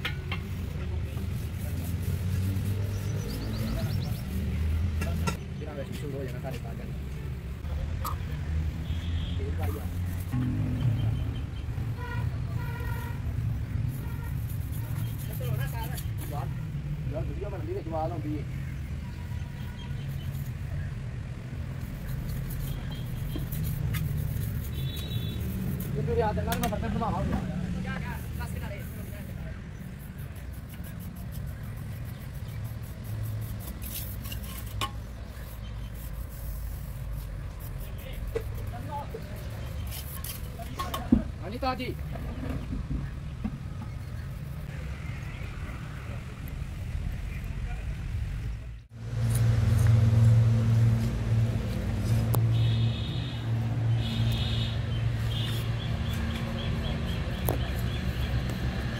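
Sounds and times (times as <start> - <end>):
paintbrush scrubbing cement: 0.4 - 5.2, 12.0 - 16.7, 17.5 - 27.2, 27.8 - 41.0, 54.2 - 58.9.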